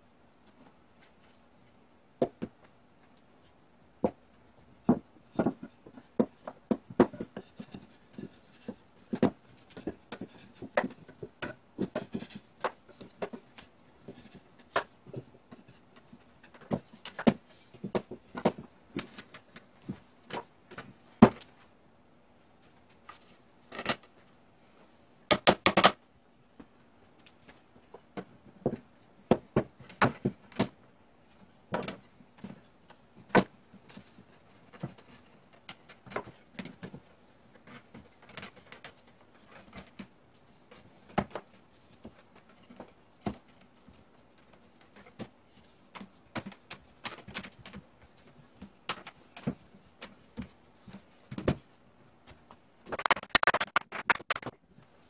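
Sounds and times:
wooden pieces knocking together: 25.3 - 26.0, 52.9 - 54.6.

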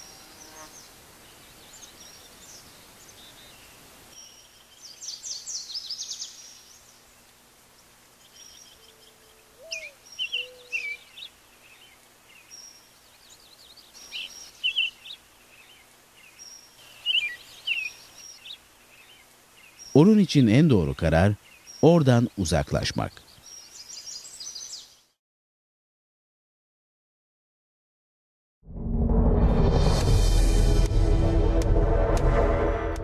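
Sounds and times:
faint steady hiss: 0.0 - 25.2
small birds chirping: 0.0 - 25.2.

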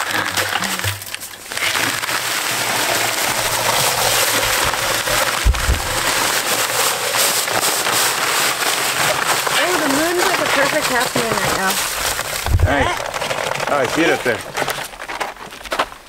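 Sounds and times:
sand and gravel pouring into drum: 0.0 - 15.2
dull thump: 5.4 - 6.3.

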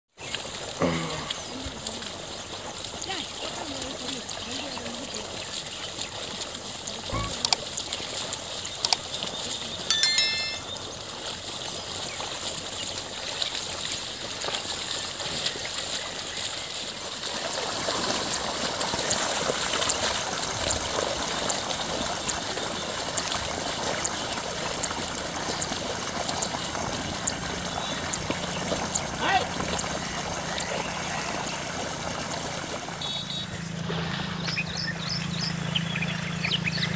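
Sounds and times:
muddy water sloshing and splashing: 0.2 - 9.8, 11.0 - 36.9.

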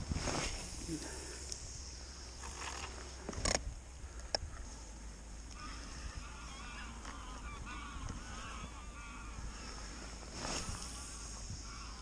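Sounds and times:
geese honking: 5.5 - 12.0.

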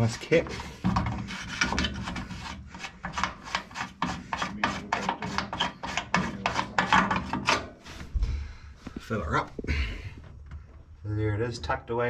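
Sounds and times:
filler cap rasping scrapes: 0.0 - 8.1.

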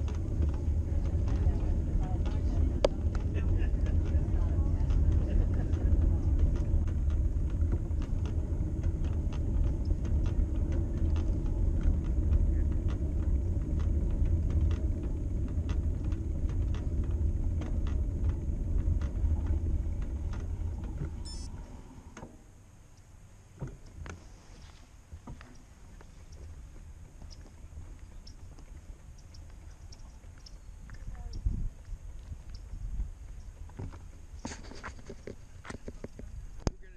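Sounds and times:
small rattling clicks: 0.0 - 21.5
wind and tyres rumbling: 0.0 - 36.9.

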